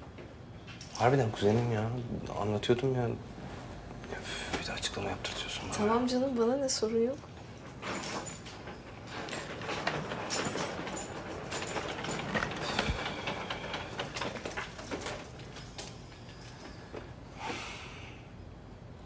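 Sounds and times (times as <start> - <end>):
suitcase wheels rolling on hard floor: 4.5 - 17.3.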